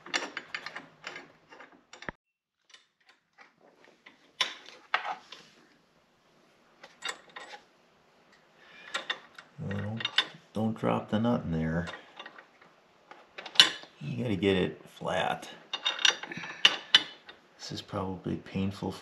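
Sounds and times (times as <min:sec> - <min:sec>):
metal bolt and nut clinking: 0:00.0 - 0:05.5, 0:06.8 - 0:07.7, 0:08.8 - 0:10.5, 0:11.8 - 0:14.2, 0:15.6 - 0:17.4
man speaking: 0:09.6 - 0:12.0, 0:14.0 - 0:15.6, 0:17.6 - 0:19.0.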